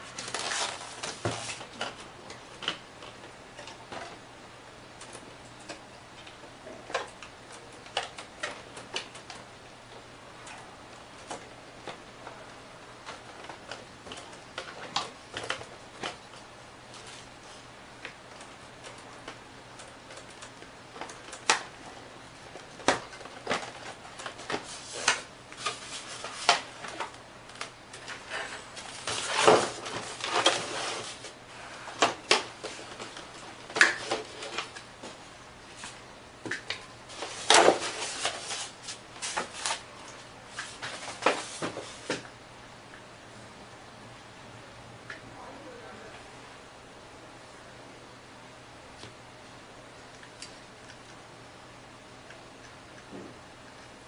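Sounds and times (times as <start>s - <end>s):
styrofoam tray and plastic handled: 0.1s - 3.8s.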